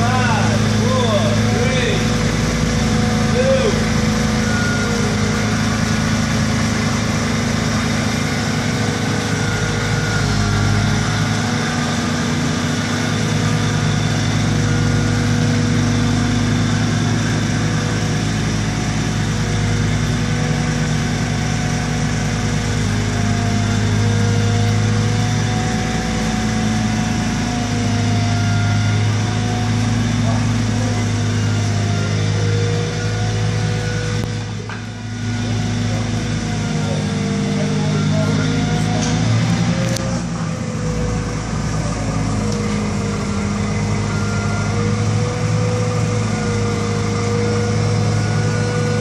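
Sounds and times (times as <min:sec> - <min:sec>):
forklift engine idling: 0:00.0 - 0:49.0.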